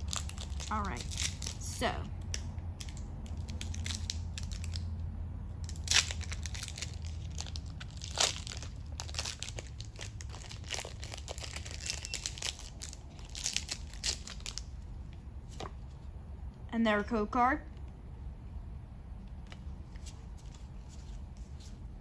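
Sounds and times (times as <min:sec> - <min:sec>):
foil wrapper crinkling: 0:00.0 - 0:01.6, 0:02.8 - 0:04.9, 0:05.7 - 0:14.7.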